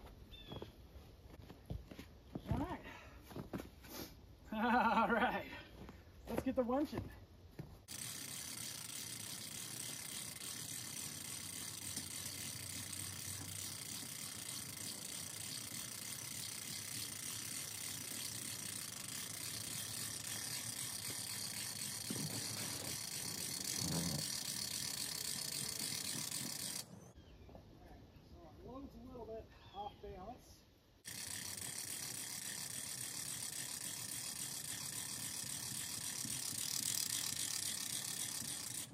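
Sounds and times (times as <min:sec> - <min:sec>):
winch ratchet clicking: 0:07.9 - 0:26.9, 0:31.0 - 0:38.9.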